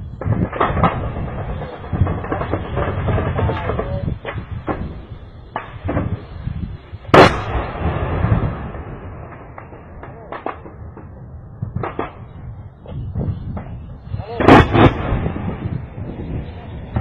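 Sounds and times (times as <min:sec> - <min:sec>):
loud echoing blast: 0:00.0 - 0:17.0
faint gunfire cracks and thuds: 0:07.1 - 0:13.8.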